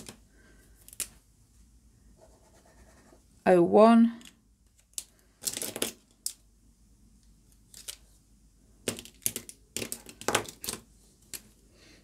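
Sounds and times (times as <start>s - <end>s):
pens clicking on wooden table: 4.2s - 6.4s, 8.8s - 11.5s.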